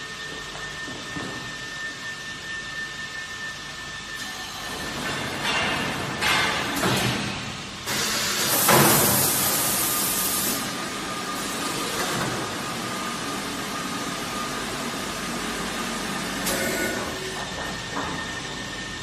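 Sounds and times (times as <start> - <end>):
machine running with whine: 7.3 - 19.0
machine hiss: 7.8 - 10.7.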